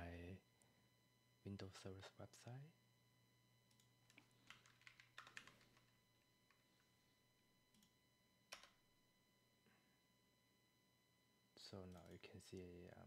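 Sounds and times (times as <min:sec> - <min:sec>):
faint keyboard typing: 0:03.7 - 0:06.9, 0:07.7 - 0:08.8, 0:11.8 - 0:12.9.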